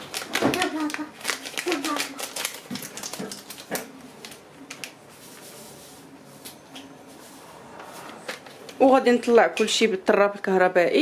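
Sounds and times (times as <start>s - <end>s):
foil sachet crinkling: 0.0s - 5.0s.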